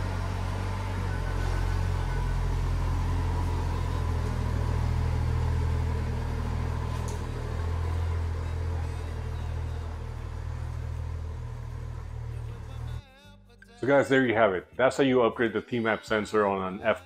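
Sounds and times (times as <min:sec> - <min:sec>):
car engine low rumble: 0:00.0 - 0:13.2.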